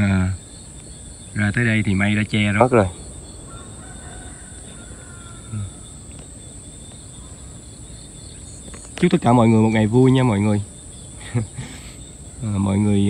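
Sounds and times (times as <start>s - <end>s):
faint low outdoor rumble: 0.0s - 13.0s
insects chirring: 0.0s - 13.0s
low vocal hum: 4.5s - 6.4s, 9.4s - 13.0s.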